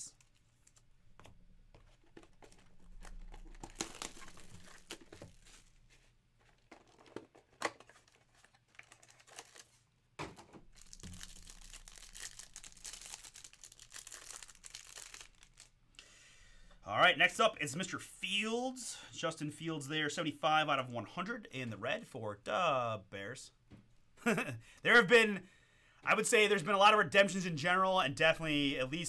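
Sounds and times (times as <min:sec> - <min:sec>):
wrapper crinkling and tearing: 0:01.9 - 0:09.9, 0:10.6 - 0:15.8.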